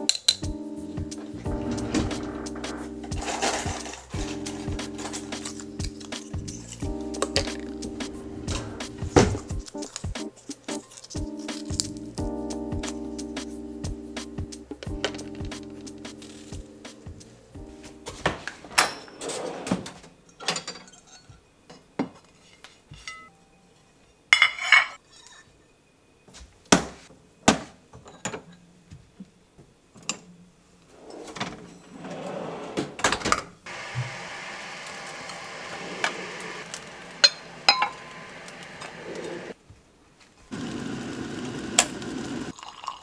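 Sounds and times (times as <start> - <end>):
plates and glassware clinking: 18.8 - 23.3, 24.3 - 25.5, 37.2 - 38.1.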